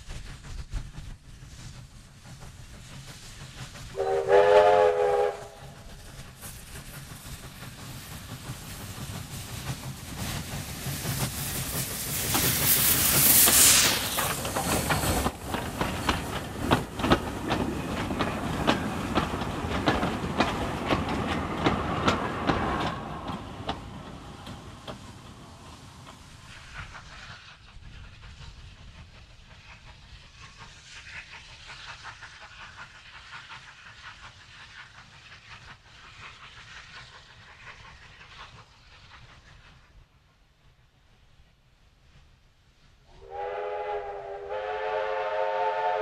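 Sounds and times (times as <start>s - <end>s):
train wheels clicking over rail joints: 0.0s - 40.4s
hiss of steam: 0.0s - 46.0s
steam whistle blast: 4.0s - 5.8s, 43.1s - 46.0s.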